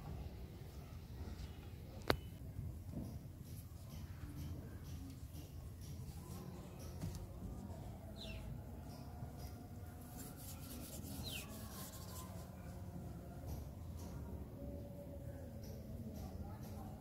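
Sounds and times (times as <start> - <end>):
dough rubbing between fingertips: 10.0 - 12.8.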